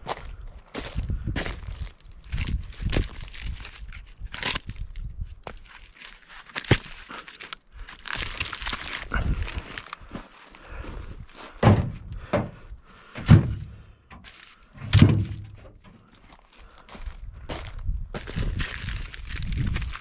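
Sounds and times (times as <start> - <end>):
footsteps crunching on bark: 0.0 - 20.0
logs thunking into truck bed: 11.6 - 12.6, 13.2 - 13.8, 14.8 - 15.8.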